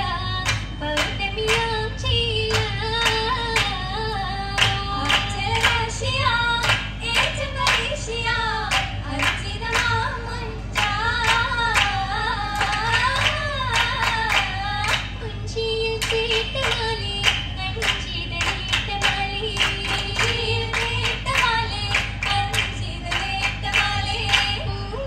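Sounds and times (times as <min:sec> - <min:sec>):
women singing: 0:00.0 - 0:25.0
group handclaps: 0:00.4 - 0:01.8, 0:02.5 - 0:03.9, 0:04.6 - 0:15.2, 0:16.0 - 0:24.8.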